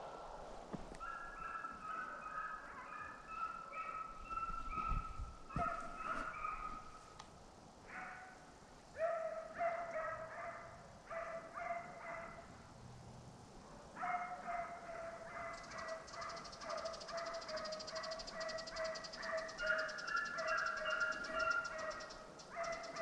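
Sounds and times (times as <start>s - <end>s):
hounds baying and barking: 1.0s - 7.0s, 9.0s - 12.4s, 13.7s - 23.0s.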